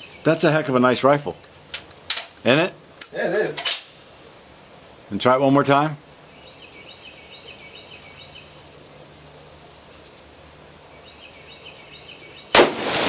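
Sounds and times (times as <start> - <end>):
birds chirping: 0.0 - 12.7
rifle shot echoing: 12.5 - 13.0.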